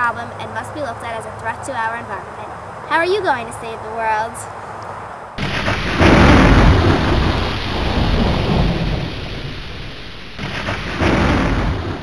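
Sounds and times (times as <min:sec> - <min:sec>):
rain hissing: 0:02.5 - 0:12.0
thunder rumbling: 0:05.4 - 0:12.0.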